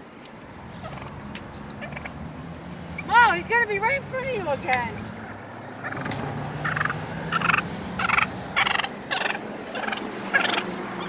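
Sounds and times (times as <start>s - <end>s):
turkey gobbling: 5.8s - 10.7s.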